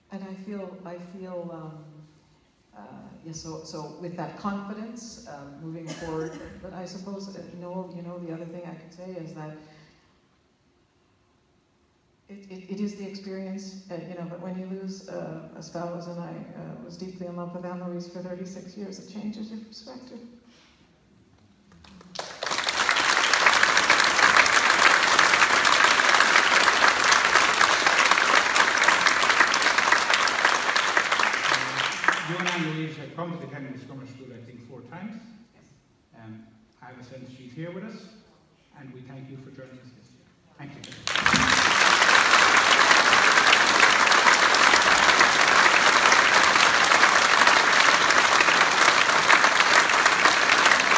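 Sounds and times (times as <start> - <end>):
audience applauding: 21.7 - 32.9, 40.8 - 50.9.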